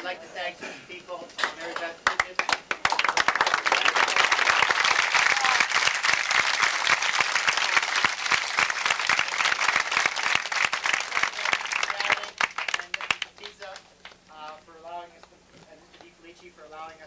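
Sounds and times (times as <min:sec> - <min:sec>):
audience applauding: 0:01.4 - 0:14.2.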